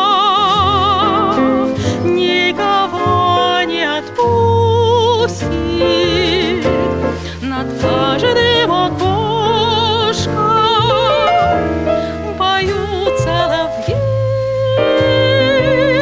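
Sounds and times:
jazz quartet playing: 0.0 - 16.0
woman singing with vibrato: 0.0 - 16.0.

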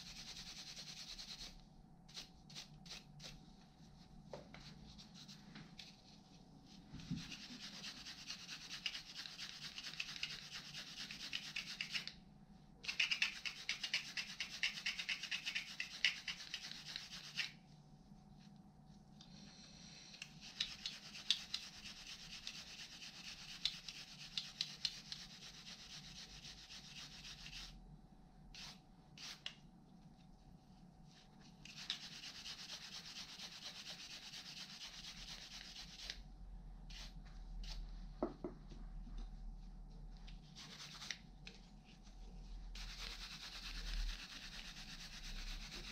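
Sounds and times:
scratchy rubbing on metal: 7.0 - 12.1, 20.4 - 27.8, 31.7 - 36.2, 40.6 - 41.2, 42.8 - 45.9.

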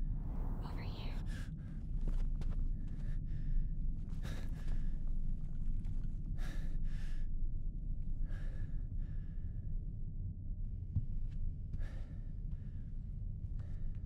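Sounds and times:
low rumble: 0.0 - 8.3
man breathing heavily: 2.8 - 5.5, 6.2 - 7.3.

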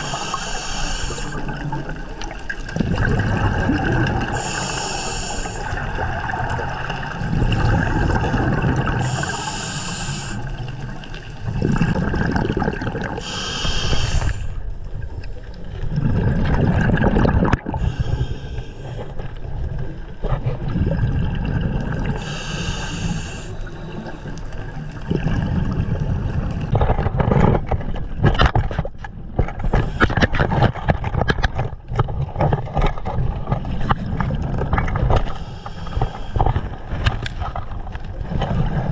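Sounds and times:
regulator inhalation hiss: 0.0 - 1.4, 4.4 - 5.8, 9.0 - 10.6, 13.2 - 14.6, 22.2 - 24.2
exhaled bubbles rumbling: 1.2 - 38.9
clicks and knocks against rock: 26.7 - 34.0.

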